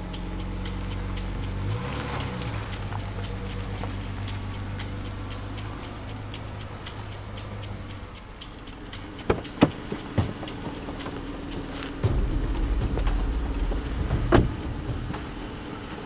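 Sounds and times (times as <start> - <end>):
car engine idling: 0.0 - 16.0
steady light ticking: 0.0 - 16.0
car door unlatching and opening: 14.2 - 15.2.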